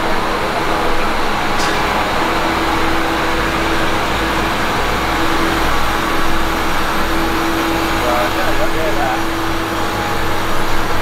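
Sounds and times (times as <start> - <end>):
constant hum tone: 0.0 - 11.0.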